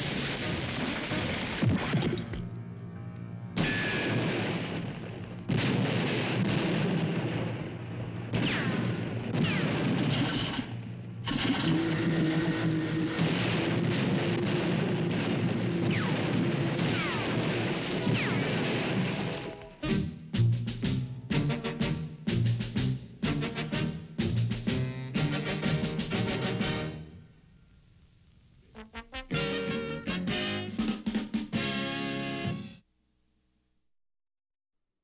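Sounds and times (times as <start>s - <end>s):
noisy sound effects: 0.0s - 21.9s
cartoon music: 28.8s - 31.0s.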